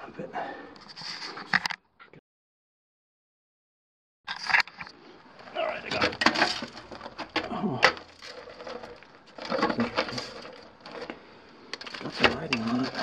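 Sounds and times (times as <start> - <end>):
scraping and knocking on rock: 5.9 - 13.0.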